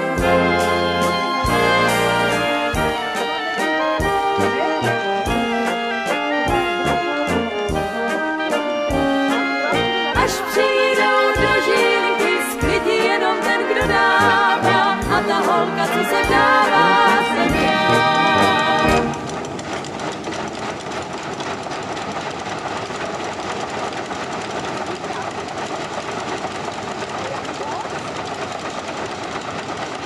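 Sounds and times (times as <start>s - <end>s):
song with band: 0.0s - 19.5s
threshing machine rattling: 19.0s - 30.0s.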